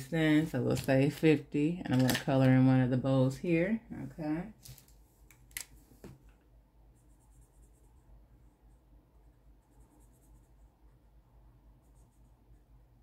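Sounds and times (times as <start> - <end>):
marker scratching on paper: 6.9 - 11.0, 11.8 - 12.6.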